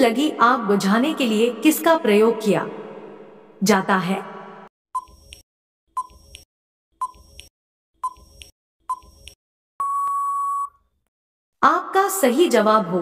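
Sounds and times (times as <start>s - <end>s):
long steady beep: 9.8s - 10.8s
short beeps: 9.8s - 10.8s.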